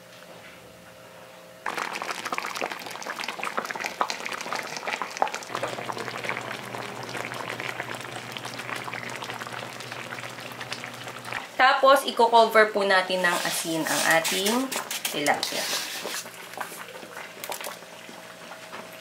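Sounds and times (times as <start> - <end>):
liquid bubbling and popping: 1.6 - 11.5, 16.0 - 18.9
low steady hum: 5.5 - 13.2.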